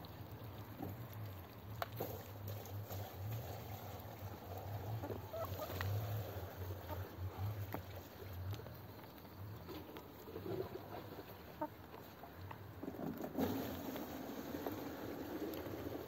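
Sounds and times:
ducks pecking clicks: 0.0 - 3.3, 4.3 - 13.4.

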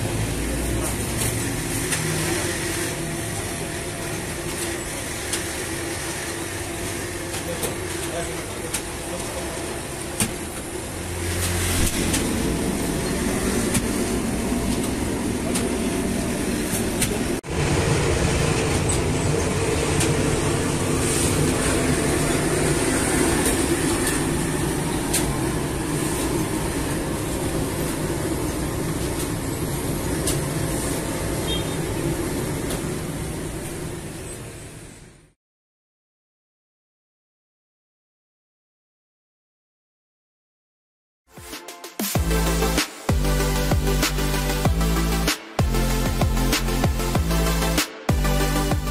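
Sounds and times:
bread machine running: 0.0 - 31.2.

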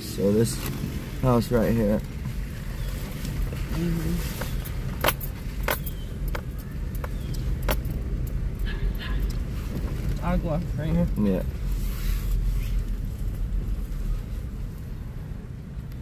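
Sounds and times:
car engine and road rumble: 0.0 - 16.0
sharp clicks and rattles: 3.1 - 11.3.

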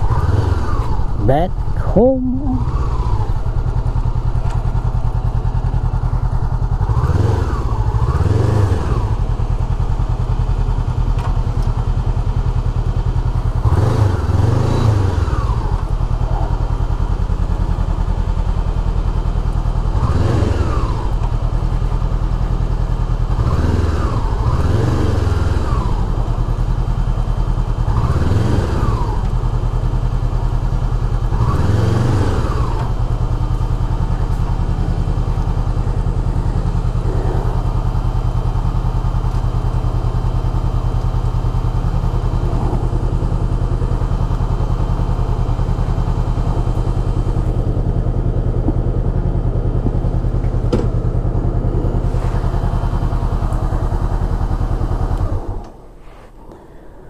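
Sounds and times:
motorcycle engine idling: 0.0 - 57.0
motorcycle throttle blips: 14.9 - 55.8.

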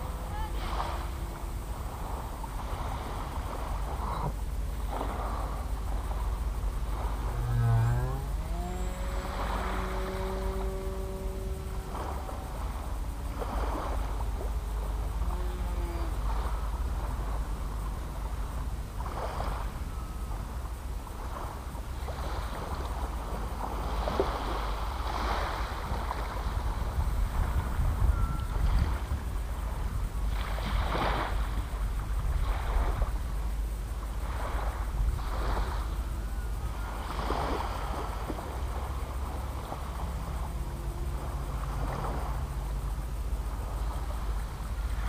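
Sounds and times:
small waves washing onto sand: 0.0 - 19.8, 20.7 - 27.8, 28.6 - 36.2, 36.8 - 45.0
wind rumbling on microphone: 0.0 - 45.0.

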